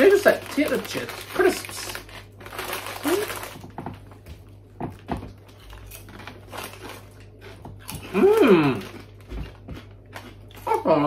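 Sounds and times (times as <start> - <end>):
foil crisp packet crinkling: 0.0 - 4.2, 5.4 - 9.3
crisps crackling and crunching: 0.0 - 11.0.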